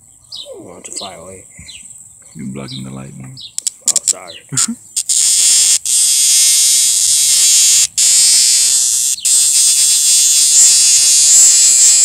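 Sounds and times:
cicada distress buzz: 0:04.2 - 0:12.0.

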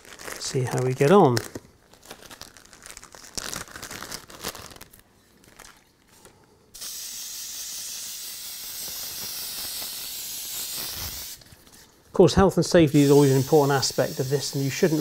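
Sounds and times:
aerosol can spraying: 0:06.8 - 0:11.5, 0:12.9 - 0:15.0.

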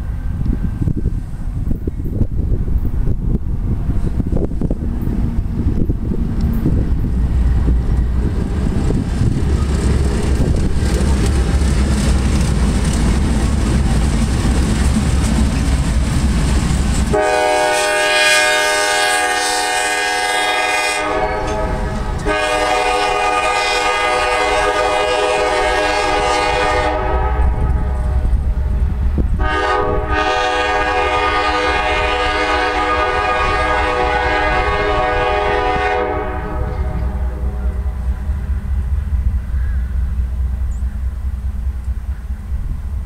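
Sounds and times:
diesel engine rumble: 0:00.0 - 0:17.7, 0:36.3 - 0:43.0
locomotive horn blasts: 0:17.1 - 0:28.5, 0:29.4 - 0:38.2.

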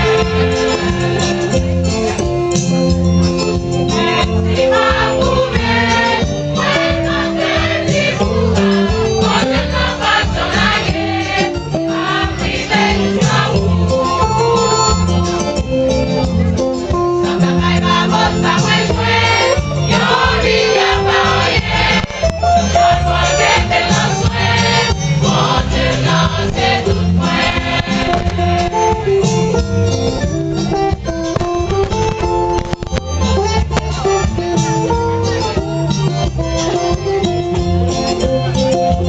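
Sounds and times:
choir singing gospel: 0:00.0 - 0:01.7, 0:03.9 - 0:15.8, 0:17.0 - 0:29.5
instrumental backing with low beat: 0:00.0 - 0:39.0.

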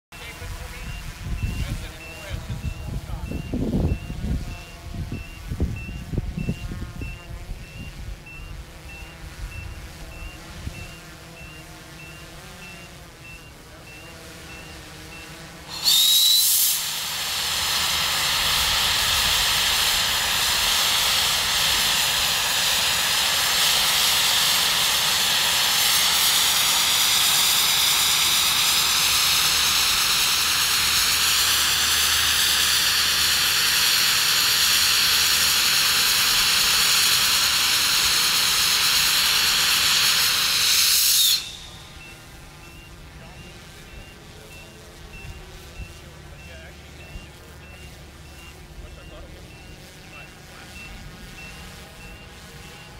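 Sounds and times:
drone rotors humming: 0:00.2 - 0:52.9
gas venting hiss: 0:14.4 - 0:52.9.

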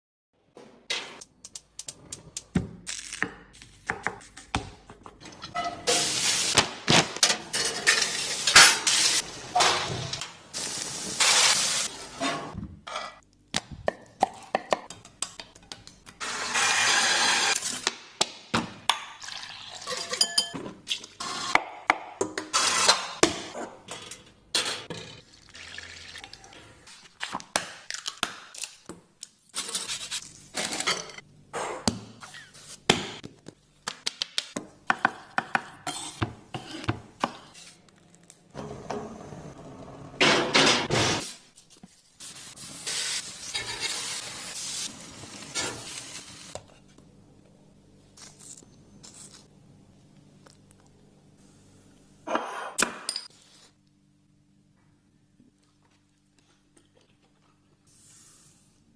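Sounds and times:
ceramic bowl and dishes clinking: 0:20.0 - 0:20.7.

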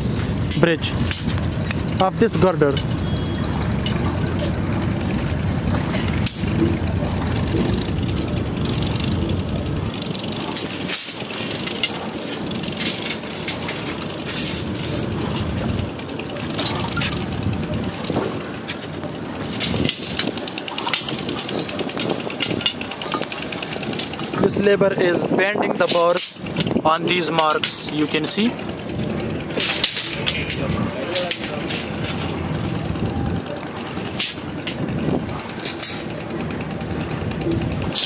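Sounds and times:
low rumble: 0:00.0 - 0:10.9
steel bars clinking: 0:10.4 - 0:24.4, 0:25.8 - 0:38.0.

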